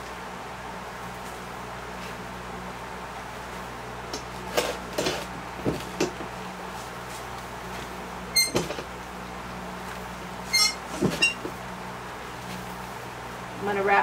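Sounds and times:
steady low hum: 0.0s - 14.0s
twine rustling and creaking: 4.1s - 9.0s, 9.8s - 11.6s
sharp squeak: 8.3s - 8.7s, 10.5s - 11.4s.

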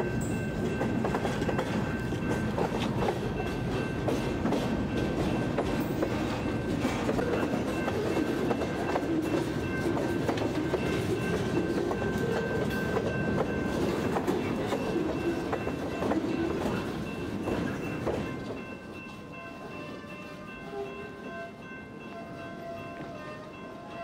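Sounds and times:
wheels clicking over rail joints: 0.1s - 19.3s.

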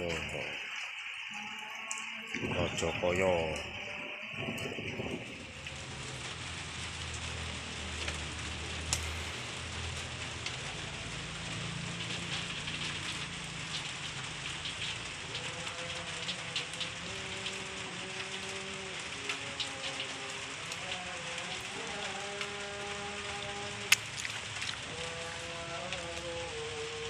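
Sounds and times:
leaves rustling and crackling: 0.0s - 27.0s
goats feeding on leaves: 7.3s - 26.7s
sharp snaps of stems: 8.9s - 9.4s, 23.9s - 24.8s.

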